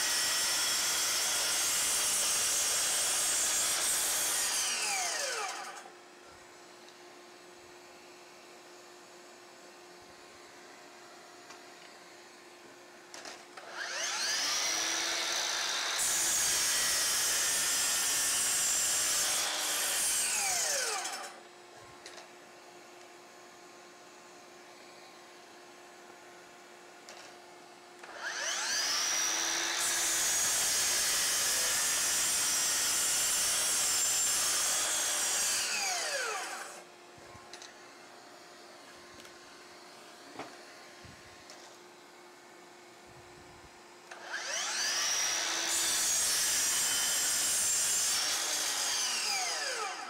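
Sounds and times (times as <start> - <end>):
miter saw cutting: 0.0 - 5.9, 13.6 - 21.4, 28.0 - 36.9, 44.1 - 50.0.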